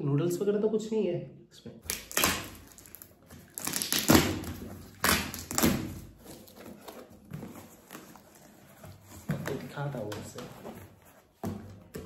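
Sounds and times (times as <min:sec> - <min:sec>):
cardboard scraping and rustling: 0:05.7 - 0:12.0.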